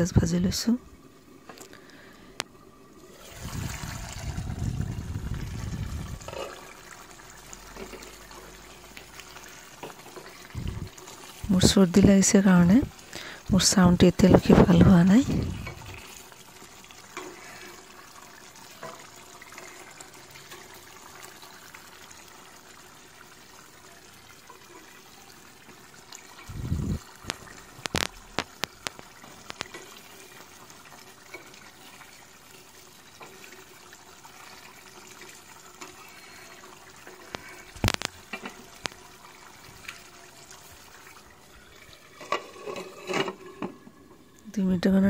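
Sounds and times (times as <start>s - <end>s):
gravy bubbling simmer: 0.0s - 45.0s
sharp clicks and knocks: 27.2s - 29.8s.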